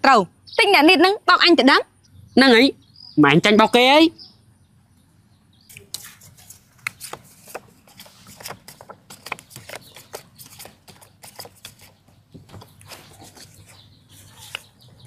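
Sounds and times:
playing cards clicking and flicking: 0:05.8 - 0:13.1.

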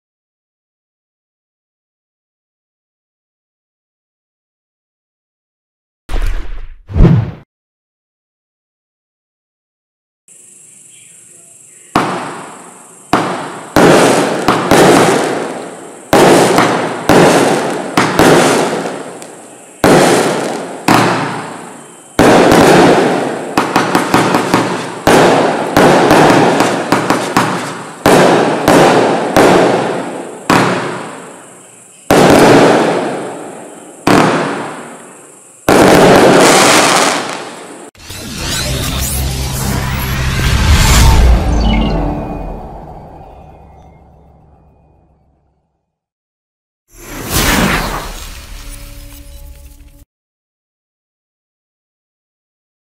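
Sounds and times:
firework bangs: 0:11.9 - 0:37.9, 0:47.0 - 0:49.3
small firework pops: 0:12.0 - 0:12.4, 0:13.1 - 0:21.5, 0:23.6 - 0:29.6.

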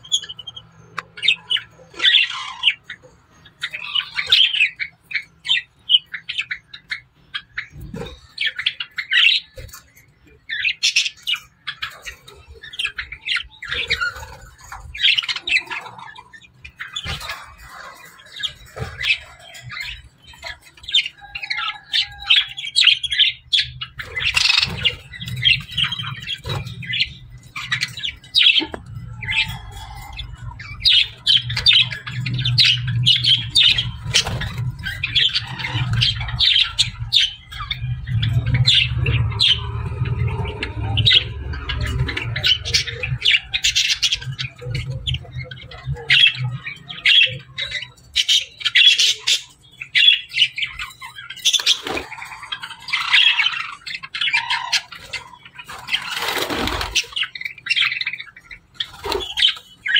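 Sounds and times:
budgerigars chattering: 0:00.0 - 0:59.9
low hum: 0:30.4 - 0:44.6.

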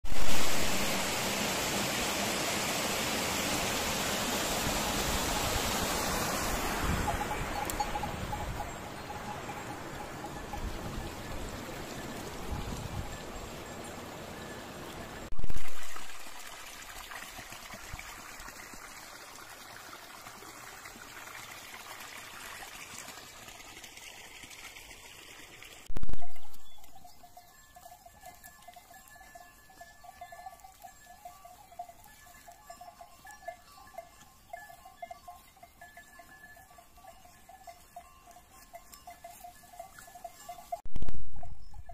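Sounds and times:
water running in a channel: 0:00.1 - 0:08.2, 0:10.1 - 0:25.9
sheep bells ringing: 0:03.4 - 0:15.4, 0:26.1 - 0:41.9.

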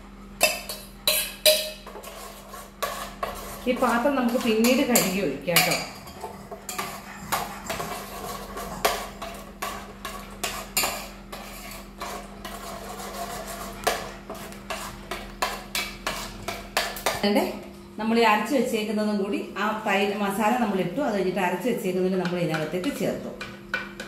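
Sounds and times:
steady low hum: 0:00.0 - 0:24.0
spoon scraping a metal pot: 0:00.4 - 0:17.2.

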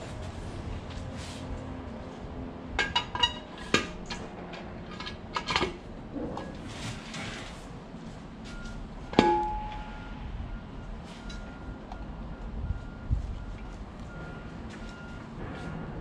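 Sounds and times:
sharp metal knock: 0:09.1 - 0:10.0.

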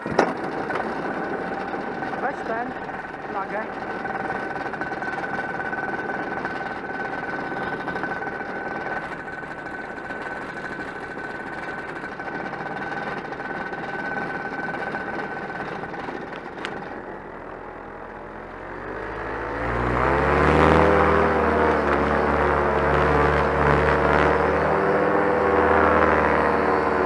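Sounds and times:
paramotor engine idling: 0:00.0 - 0:19.5.

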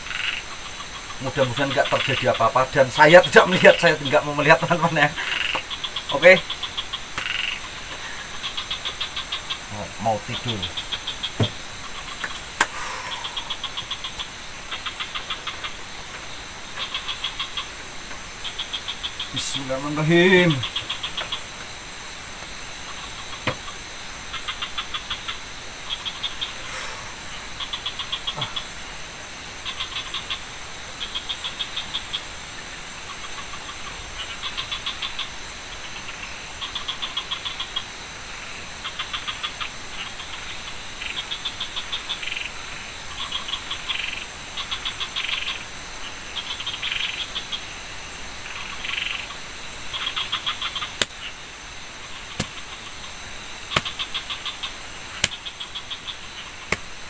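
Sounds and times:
frogs pulsing calls: 0:00.0 - 0:57.0
high insect drone: 0:00.0 - 0:57.0
sharp clicks: 0:55.2 - 0:55.4.

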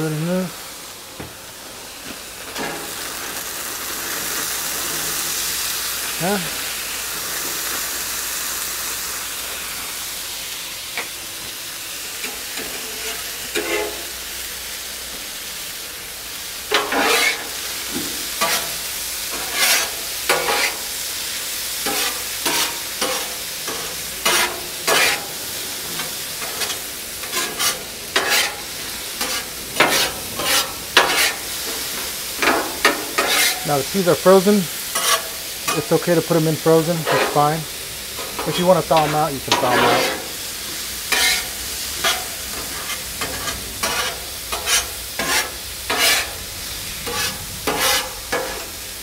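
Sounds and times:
food sizzling on a griddle: 0:00.0 - 0:49.0
spatula scraping a griddle: 0:02.5 - 0:03.4, 0:12.2 - 0:14.2, 0:16.7 - 0:49.0.

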